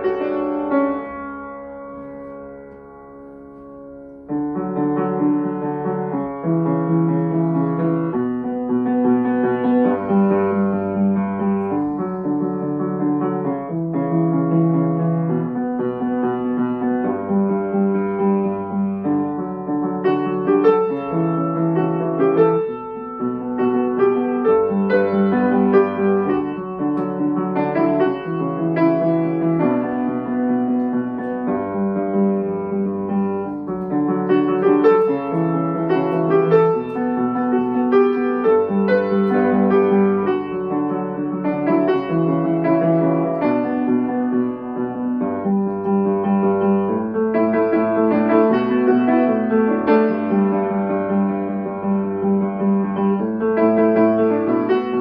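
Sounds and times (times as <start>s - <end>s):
solo piano melody: 0.0s - 55.0s.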